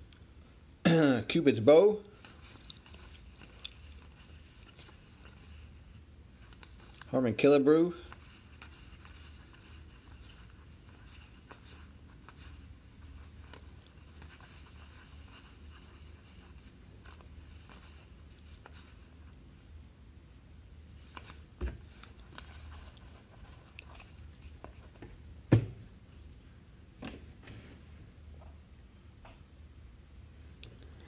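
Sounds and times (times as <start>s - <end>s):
cards being shuffled by hand: 2.1s - 19.3s, 21.0s - 25.2s.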